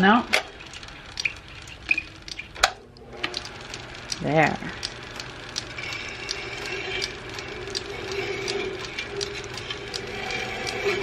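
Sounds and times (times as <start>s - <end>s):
metal lathe whine: 3.2s - 11.0s.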